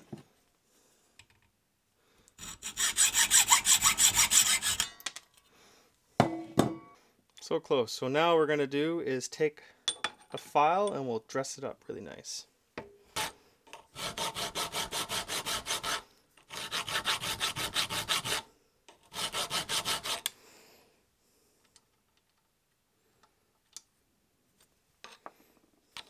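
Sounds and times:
file rasping on steel: 2.4 - 5.0, 13.2 - 20.3.

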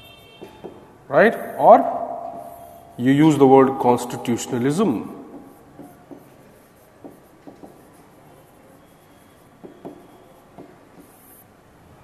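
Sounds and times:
stylus scraping on screen: 2.3 - 11.5.

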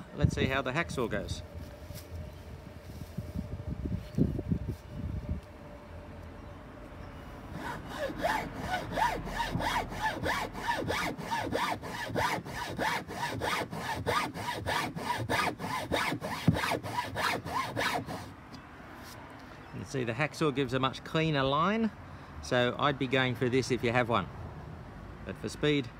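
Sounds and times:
hacksaw cutting wood: 7.5 - 18.3.

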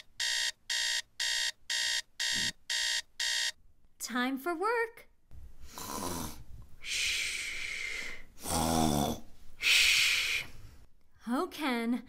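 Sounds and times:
comic snoring: 5.7 - 6.4, 8.4 - 9.3.

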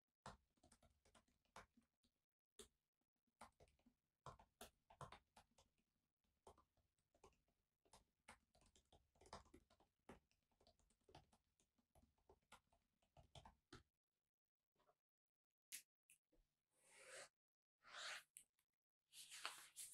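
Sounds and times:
typing on a laptop keyboard: 0.3 - 1.8, 3.4 - 5.8, 6.4 - 13.8.

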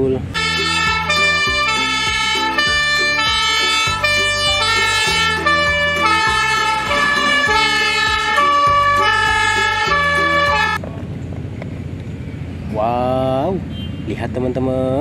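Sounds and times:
background music with beat: 0.4 - 10.8.

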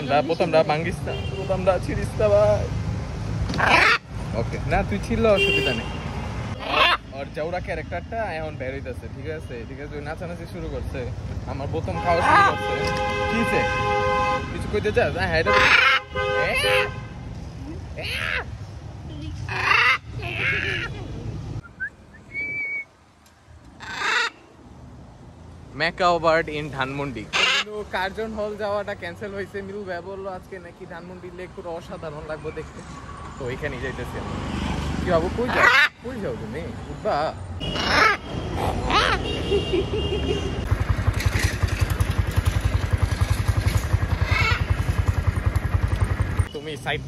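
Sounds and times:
street traffic: 0.0 - 47.0
macaw squawking: 3.6 - 4.1, 6.6 - 7.2, 15.4 - 17.0, 19.3 - 21.0, 23.8 - 24.5, 27.3 - 27.8, 35.5 - 36.1, 37.6 - 39.5, 43.9 - 45.0.

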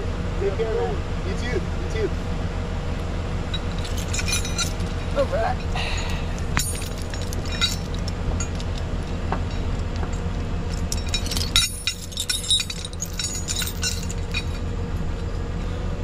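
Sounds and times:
low engine hum: 0.0 - 16.0
chain links clinking: 3.5 - 9.8, 10.6 - 15.7.

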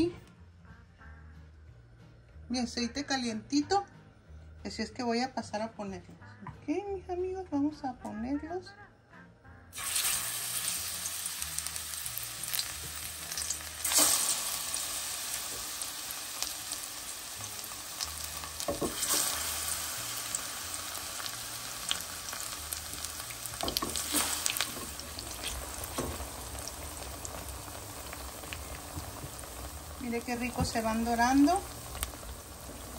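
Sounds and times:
oil crackling: 9.8 - 32.9
plantain frying in oil: 9.8 - 32.9.

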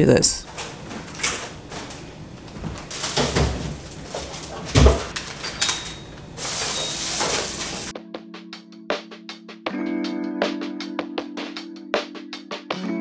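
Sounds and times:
containers clunking on shelves: 0.4 - 7.9
plastic bags rustling: 0.4 - 7.9.

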